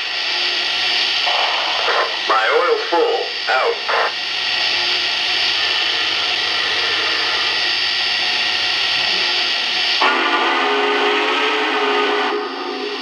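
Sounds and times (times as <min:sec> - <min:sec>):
chime steam whistle: 0:10.0 - 0:13.0.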